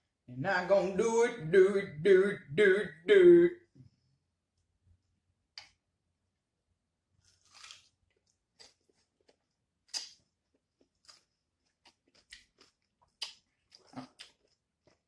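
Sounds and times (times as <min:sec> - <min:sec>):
cucumber crunching: 0:07.2 - 0:10.2.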